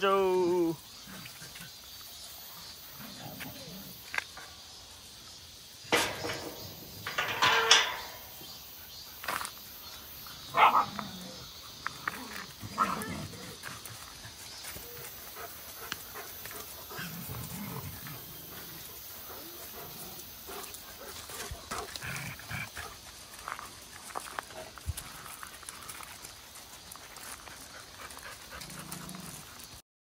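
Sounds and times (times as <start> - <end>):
cicadas buzzing: 0.0 - 29.8
dogs barking: 10.5 - 11.2.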